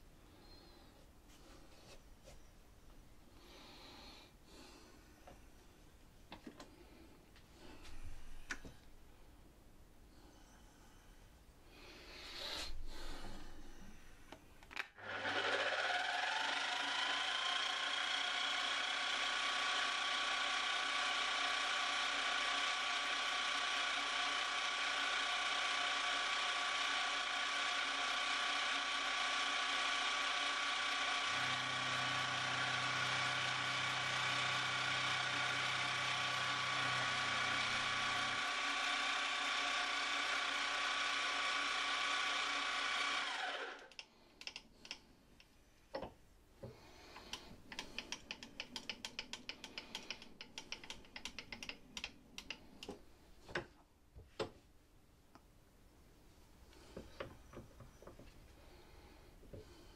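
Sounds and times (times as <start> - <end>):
milling machine whine: 15.0 - 43.9
clicks and taps of hand work: 43.9 - 54.6.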